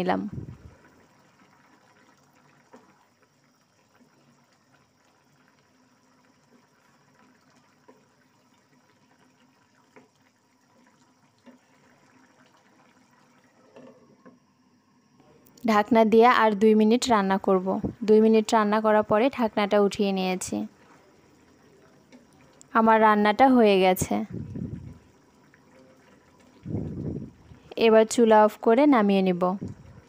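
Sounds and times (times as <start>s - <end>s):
curry bubbling in a pan: 0.2s - 15.2s, 16.0s - 30.0s
wooden spatula stirring: 9.2s - 12.8s.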